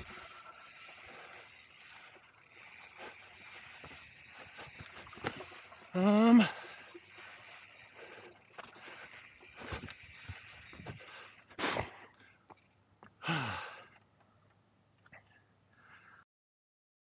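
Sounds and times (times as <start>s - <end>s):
bike tyres rolling over dirt: 0.0s - 12.7s
rider breathing hard: 0.0s - 14.0s, 15.2s - 16.2s.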